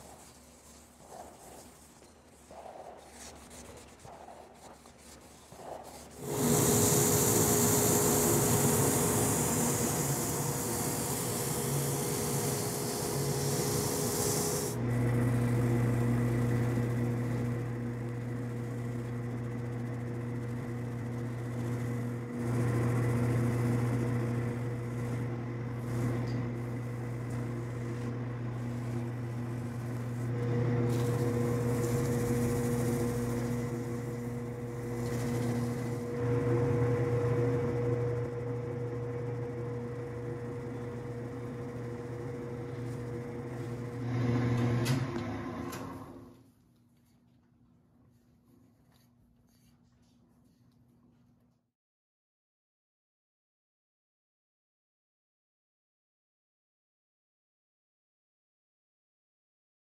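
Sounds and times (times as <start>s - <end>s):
pad rubbing on spinning wood: 0.0s - 36.1s
wood lathe humming: 6.1s - 45.9s.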